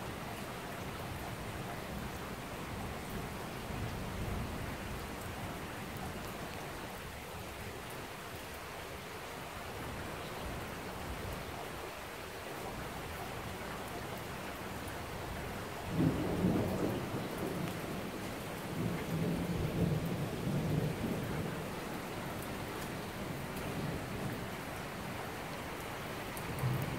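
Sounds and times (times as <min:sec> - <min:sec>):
rain on a wet street: 0:00.0 - 0:26.9
thunder rumbling: 0:15.9 - 0:24.4.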